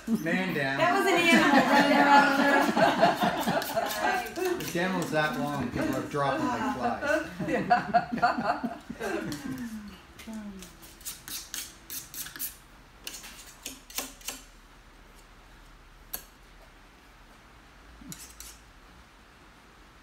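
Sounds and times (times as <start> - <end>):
painting tool scratchy strokes: 10.8 - 14.4.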